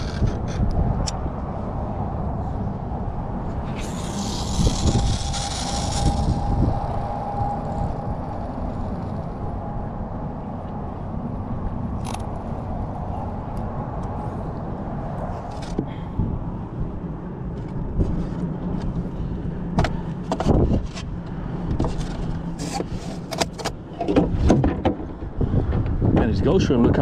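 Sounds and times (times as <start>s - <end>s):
wind buffeting microphone: 0.0s - 23.2s, 23.8s - 27.0s.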